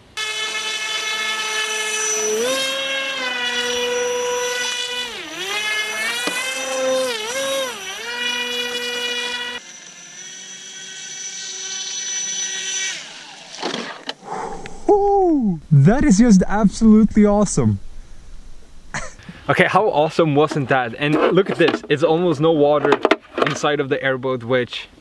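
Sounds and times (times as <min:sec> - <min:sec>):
electric motor and propeller whining: 0:00.2 - 0:14.8.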